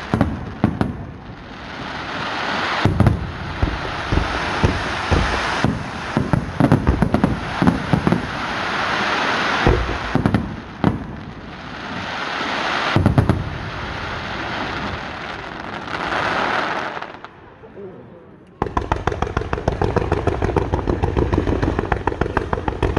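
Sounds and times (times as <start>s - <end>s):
fireworks bangs: 0.0s - 17.4s, 18.6s - 22.9s
crackling fireworks hiss: 0.0s - 17.6s, 18.4s - 22.9s.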